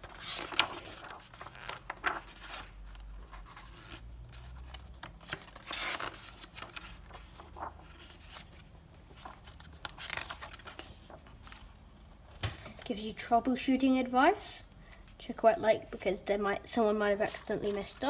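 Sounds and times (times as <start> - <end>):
paper pages turning: 0.0 - 11.8.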